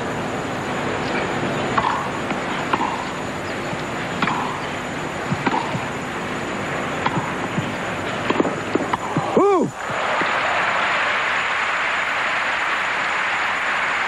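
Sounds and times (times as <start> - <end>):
steady background hiss: 0.0 - 14.0
rackets hitting tennis ball: 1.7 - 6.1, 6.7 - 9.4.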